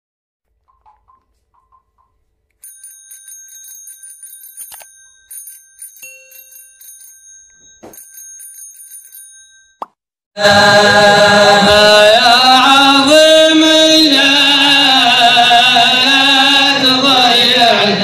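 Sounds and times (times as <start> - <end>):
bicycle bell ringing rapidly: 2.6 - 9.8.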